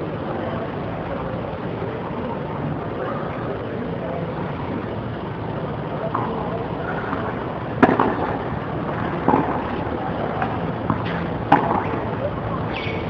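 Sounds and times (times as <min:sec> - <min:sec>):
steady background noise: 0:00.0 - 0:13.0
tennis ball struck by rackets: 0:07.8 - 0:12.2.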